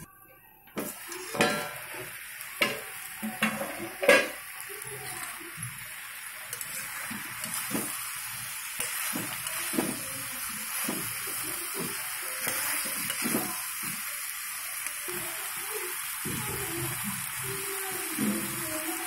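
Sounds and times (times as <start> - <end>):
chicken sizzling in hot oil: 0.7 - 19.0
metal ladle scraping pan: 0.8 - 4.4.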